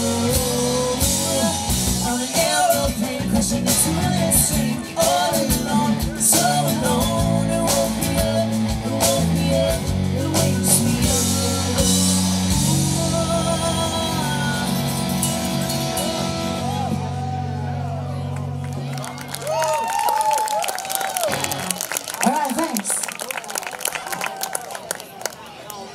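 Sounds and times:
woman singing: 0.0s - 14.8s
live rock band playing: 0.0s - 20.0s, 20.9s - 22.7s.

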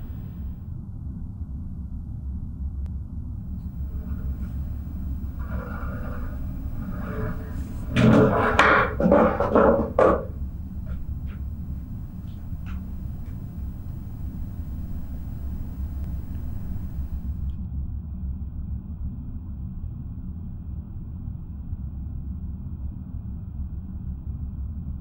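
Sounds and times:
low room rumble: 0.0s - 0.6s, 3.5s - 17.6s
chair scraping on tiled floor: 3.8s - 13.9s.

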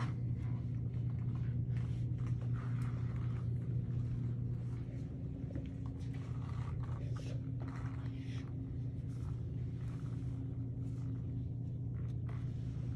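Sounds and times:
faint rustling and brushing: 0.0s - 12.9s
steady low hum: 0.0s - 12.9s.

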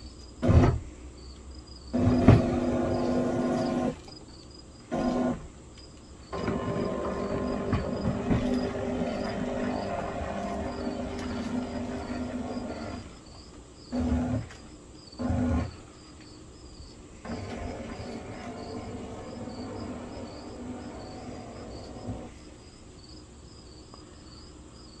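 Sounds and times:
insects chirping: 1.1s - 25.0s
hard wheels rumbling over wooden boards: 2.0s - 4.0s, 6.3s - 13.1s, 17.3s - 22.3s
electric wheel motors humming: 4.9s - 5.5s, 6.3s - 13.2s, 17.2s - 22.3s.

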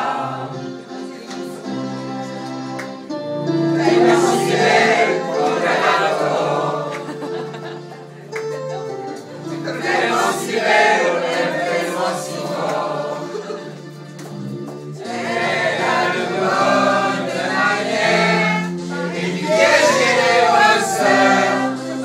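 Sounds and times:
mixed chorus singing: 0.0s - 0.8s, 3.5s - 7.8s, 9.4s - 14.0s, 15.0s - 22.0s.

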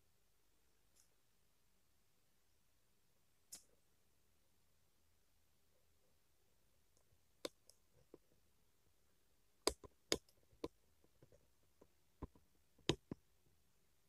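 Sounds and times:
sharp clicks and taps: 9.6s - 13.2s.

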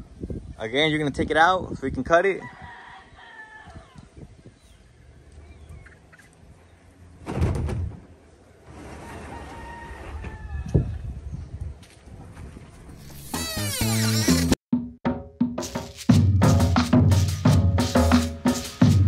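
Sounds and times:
rooster crowing: 2.4s - 4.1s, 9.0s - 11.0s
thump: 7.2s - 8.0s.

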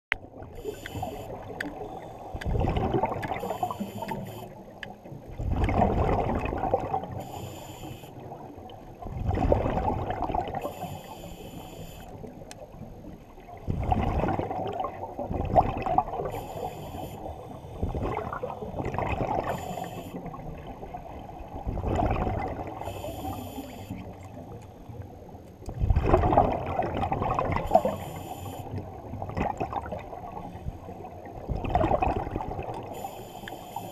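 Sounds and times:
exhaled bubbles rushing: 0.2s - 4.0s, 5.2s - 7.2s, 8.2s - 10.8s, 13.3s - 16.4s, 17.8s - 23.0s, 25.7s - 28.0s, 28.8s - 33.0s
regulator air hiss: 33.0s - 33.9s.

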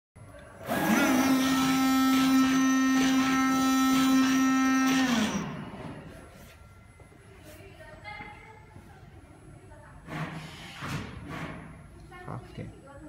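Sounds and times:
cutting machine buzzing hum: 0.6s - 6.1s.

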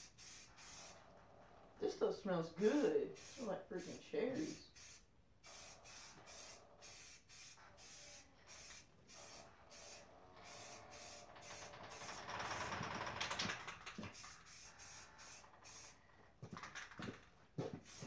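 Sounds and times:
spray can hissing: 0.0s - 1.0s, 2.6s - 12.2s, 13.9s - 16.0s, 17.8s - 18.0s.

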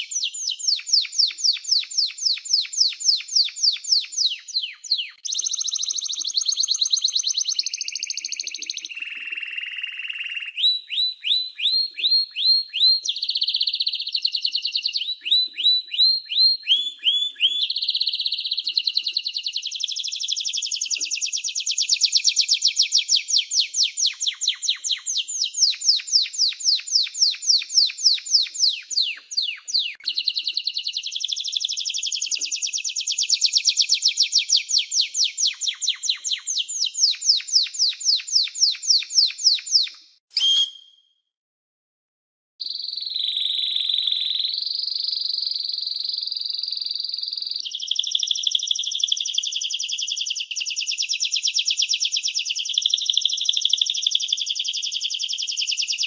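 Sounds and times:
canary singing: 0.0s - 41.0s.

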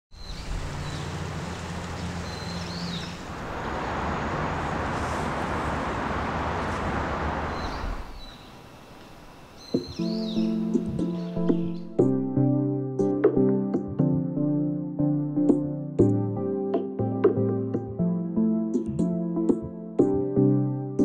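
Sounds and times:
bird chirps: 0.1s - 4.3s, 7.5s - 12.0s
traffic rumble: 0.1s - 9.9s
vehicle passing: 0.2s - 8.8s
music: 9.7s - 21.0s.

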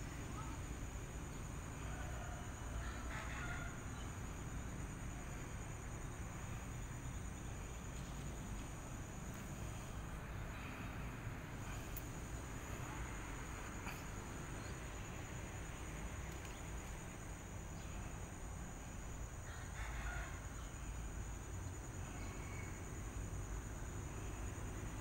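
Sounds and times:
low continuous rumble: 0.0s - 25.0s.

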